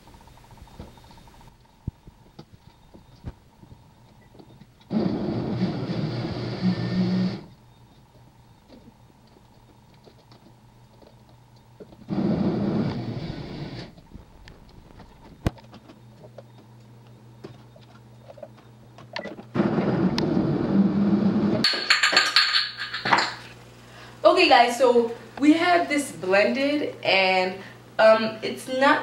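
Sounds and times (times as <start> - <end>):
electric blender running: 4.9 - 7.5.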